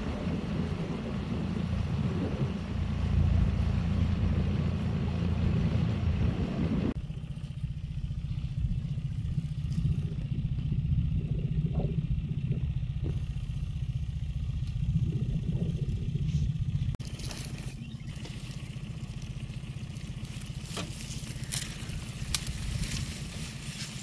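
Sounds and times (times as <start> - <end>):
hiss of wind and water: 0.0 - 7.0
boat motor rumbling: 0.0 - 24.0.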